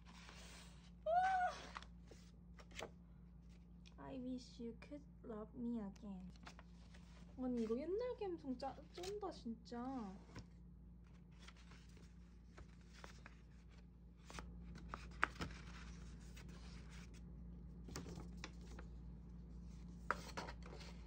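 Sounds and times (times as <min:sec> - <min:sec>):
paper envelope rustling: 0:01.6 - 0:03.6, 0:06.3 - 0:07.8, 0:08.7 - 0:09.2, 0:11.0 - 0:17.2, 0:17.9 - 0:18.9.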